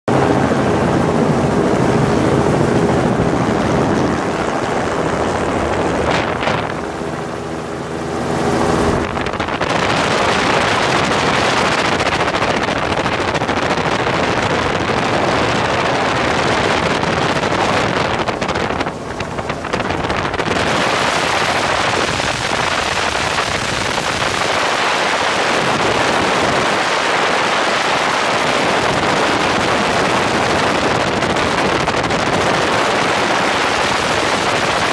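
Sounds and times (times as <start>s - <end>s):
helicopter engine and rotor: 0.1s - 9.1s
wind rushing over microphone: 0.1s - 34.9s.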